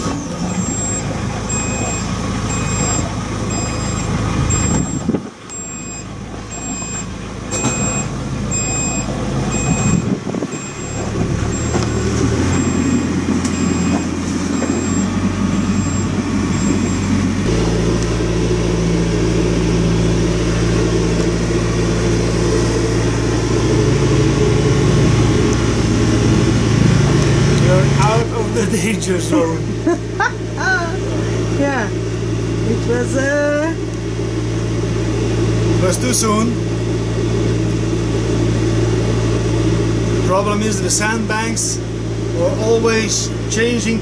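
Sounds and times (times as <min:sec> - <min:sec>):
boat engine running: 0:00.0 - 0:44.0
high electronic beeps: 0:00.5 - 0:17.2.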